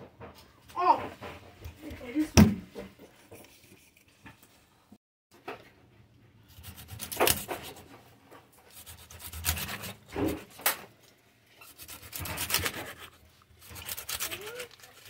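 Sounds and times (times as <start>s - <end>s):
knife cutting through fish: 6.5s - 7.9s, 8.7s - 10.8s, 11.6s - 15.0s.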